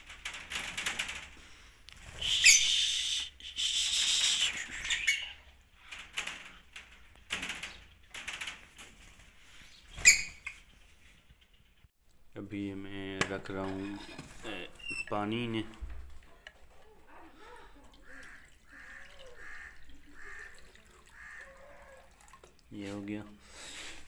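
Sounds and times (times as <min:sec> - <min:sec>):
wing flutters: 0:00.0 - 0:11.9
lovebirds chirping: 0:02.0 - 0:05.9, 0:09.3 - 0:12.0.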